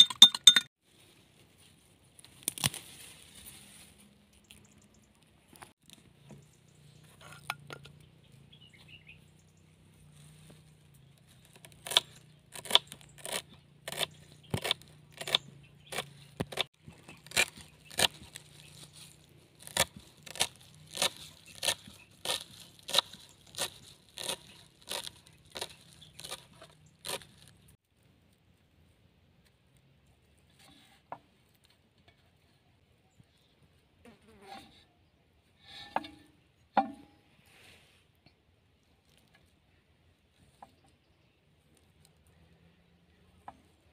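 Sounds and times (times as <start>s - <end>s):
leaves rustling: 0.8s - 5.1s, 16.9s - 27.6s.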